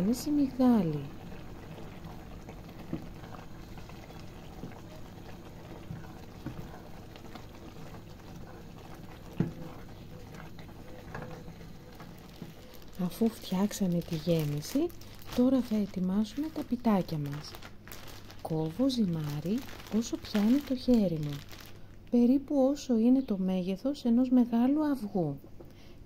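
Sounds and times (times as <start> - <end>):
thick filling bubbling in a pot: 0.0 - 22.7
wooden spoon knocking on pot: 9.2 - 11.5.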